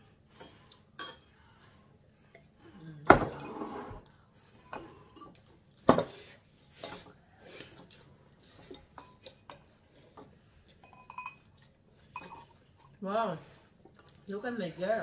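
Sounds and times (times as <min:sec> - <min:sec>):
forks clinking on ceramic bowls: 0:00.4 - 0:01.3, 0:03.1 - 0:05.5, 0:08.7 - 0:13.0.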